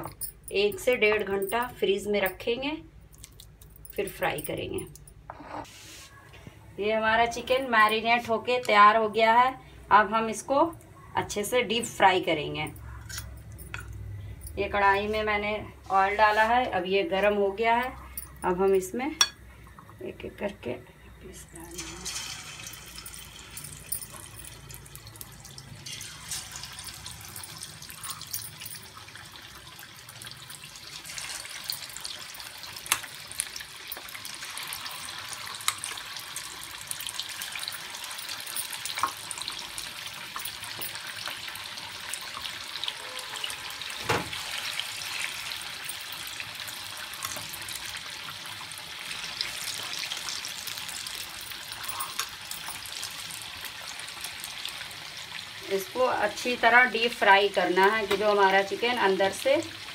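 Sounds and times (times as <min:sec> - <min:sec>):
deep-frying sizzling and bubbling: 0:18.6 - 0:59.9.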